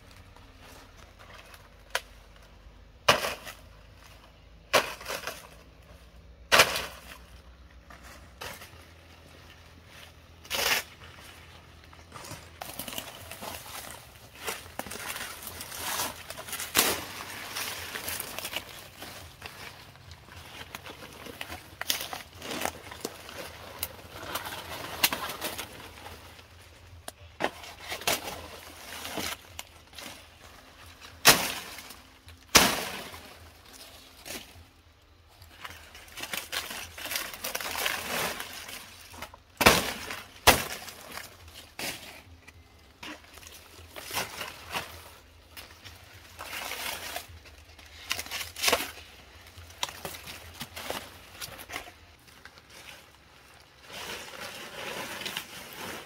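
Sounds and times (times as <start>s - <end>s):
rustling: 0.0s - 56.0s
sharp knocks and cracks: 3.0s - 3.6s, 4.7s - 5.6s, 6.5s - 7.2s, 31.2s - 33.4s, 39.2s - 42.1s.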